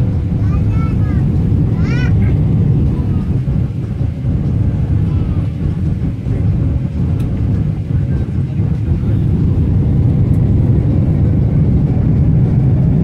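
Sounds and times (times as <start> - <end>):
airliner engines rumbling: 0.0 - 13.0
rushing air: 0.0 - 13.0.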